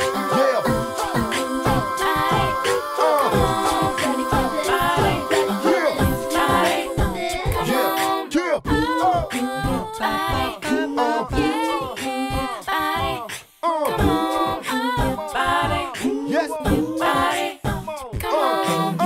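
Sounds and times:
voices singing without instruments: 0.0s - 19.0s.

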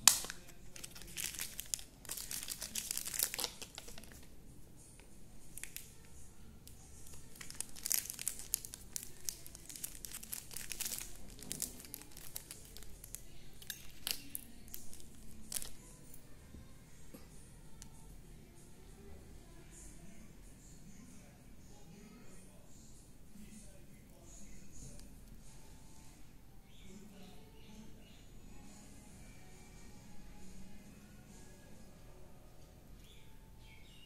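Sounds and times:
plastic packaging crinkling: 0.0s - 4.3s, 5.5s - 6.1s, 7.0s - 16.0s.

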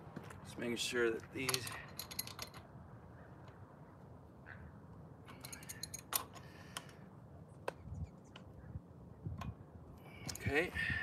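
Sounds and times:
light metallic clicks and rattles: 1.2s - 2.7s, 5.2s - 7.0s.

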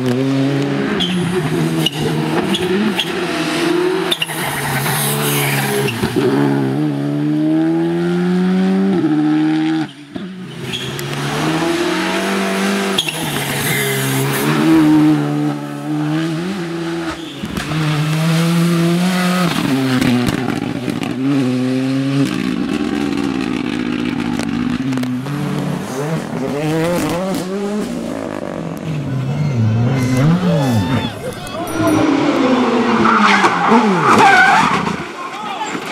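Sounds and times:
rally car engines revving: 0.0s - 35.9s.

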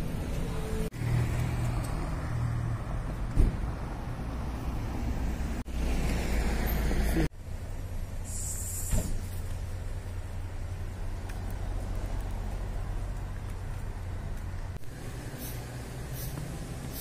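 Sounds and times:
cars driving past: 0.0s - 17.0s
short thump: 3.1s - 3.7s, 8.8s - 9.4s.

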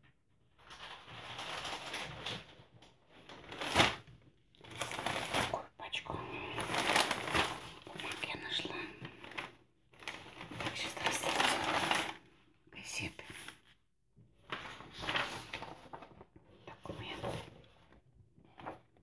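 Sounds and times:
paper rustling: 0.6s - 5.6s, 6.5s - 8.3s, 9.1s - 12.2s, 14.4s - 17.8s
person whispering: 5.3s - 7.0s, 7.8s - 9.2s, 10.6s - 11.4s, 12.7s - 13.6s, 16.6s - 17.6s.

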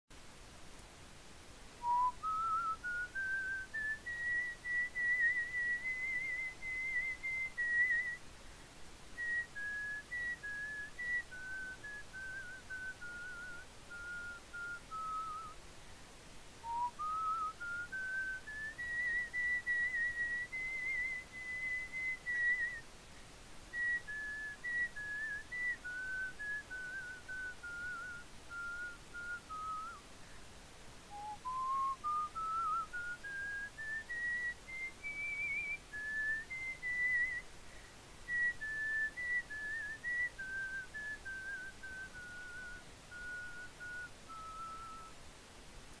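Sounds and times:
person whistling a slow tune: 1.8s - 8.2s, 9.2s - 15.6s, 16.6s - 22.9s, 23.7s - 30.1s, 31.1s - 45.2s.

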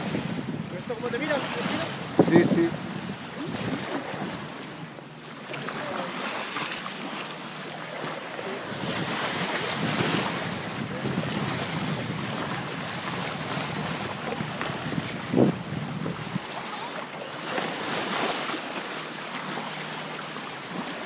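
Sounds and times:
wind buffeting microphone: 0.0s - 4.8s, 8.6s - 16.6s
bow wave splashing along hull: 0.0s - 21.0s.

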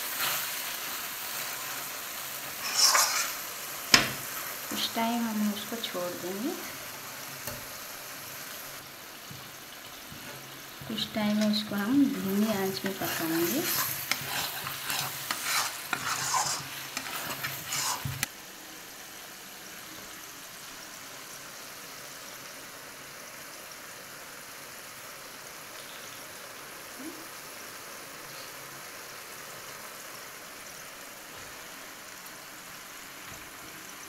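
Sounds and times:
masala frying sizzle: 0.0s - 34.0s
spatula scraping metal pan: 2.5s - 3.4s, 12.7s - 18.3s.

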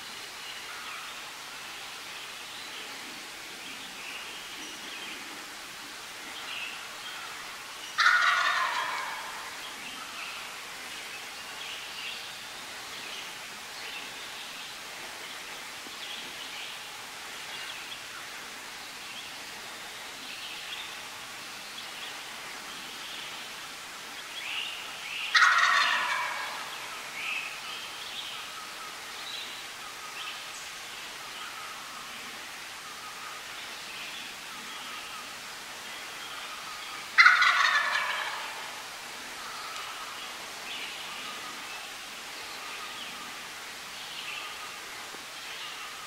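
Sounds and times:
turkey gobbling: 8.0s - 9.5s, 25.3s - 26.8s, 37.2s - 38.8s.

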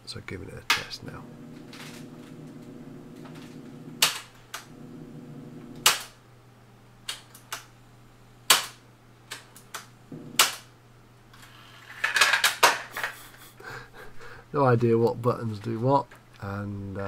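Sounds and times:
tape transport whirring: 1.0s - 6.0s, 10.1s - 10.5s.

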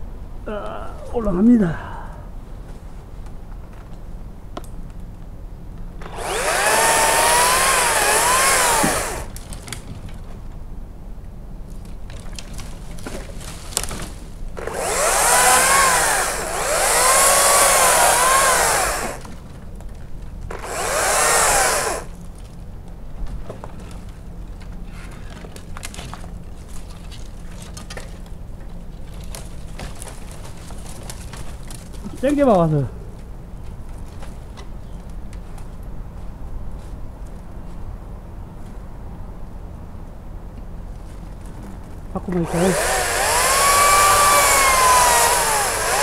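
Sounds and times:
battery chainsaw cutting wood: 6.0s - 9.4s, 14.6s - 19.3s, 20.5s - 22.2s, 42.4s - 46.0s.

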